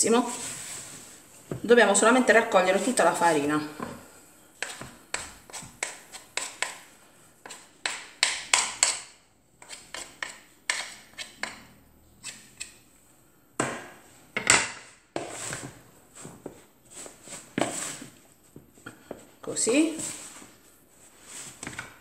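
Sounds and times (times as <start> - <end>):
spoons scraping in plastic bowl: 16.9 - 18.2.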